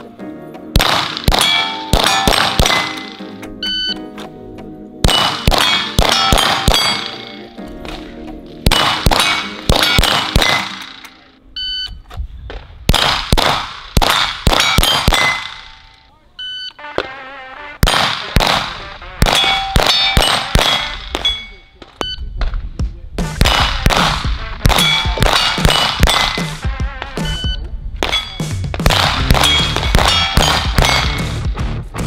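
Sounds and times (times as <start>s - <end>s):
pistol shots: 0.7s - 3.6s, 5.0s - 8.0s, 8.6s - 11.3s, 12.9s - 15.9s, 17.8s - 22.6s, 23.3s - 26.6s, 28.0s - 31.4s
steel targets clanging: 1.1s - 4.0s, 5.1s - 7.5s, 8.7s - 11.3s, 19.2s - 22.1s, 24.8s - 26.6s, 27.3s - 31.4s
shot timer beep: 3.6s - 4.0s, 10.7s - 12.0s, 21.2s - 22.3s.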